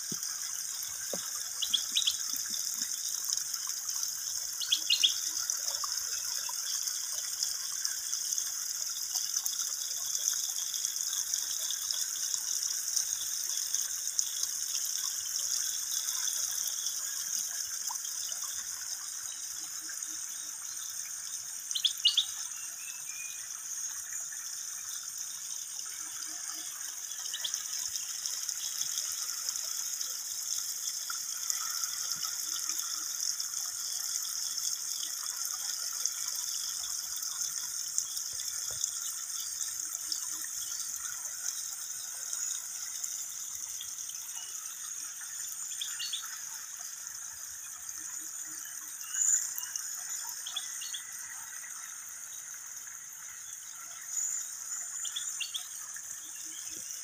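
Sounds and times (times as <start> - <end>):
bird chirping: 1.6 - 2.3, 4.6 - 5.2, 21.7 - 23.5, 45.7 - 46.3, 54.2 - 55.8.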